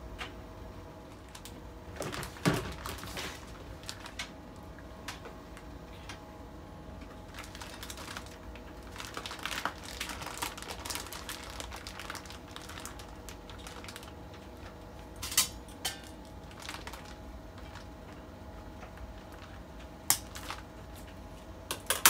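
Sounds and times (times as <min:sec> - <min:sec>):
plastic bag crinkling: 0:01.1 - 0:04.3, 0:07.3 - 0:18.2, 0:19.2 - 0:21.0.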